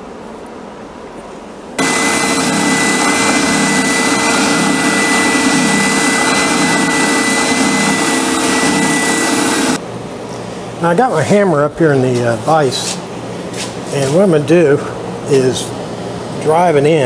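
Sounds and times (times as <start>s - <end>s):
sander machine whine: 1.8s - 9.8s
wood being sanded: 1.8s - 9.8s.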